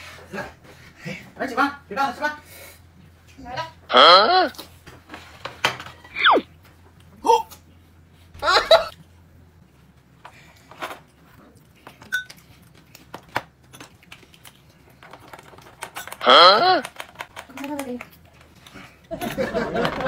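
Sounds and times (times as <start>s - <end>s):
person exclaiming: 3.9s - 4.6s, 16.2s - 16.9s.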